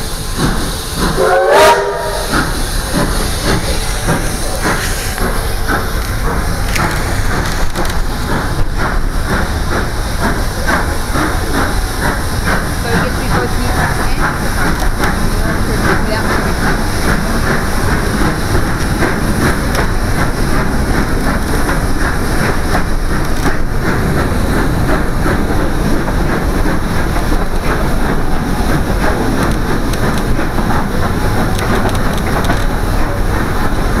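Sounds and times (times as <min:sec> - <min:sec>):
train rumble and rush: 0:00.0 - 0:34.0.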